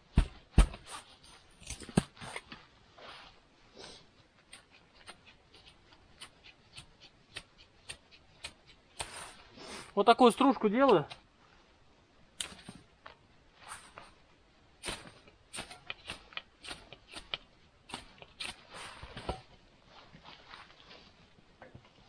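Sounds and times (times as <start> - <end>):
knife scraping wood: 4.4 - 9.4, 14.9 - 19.6.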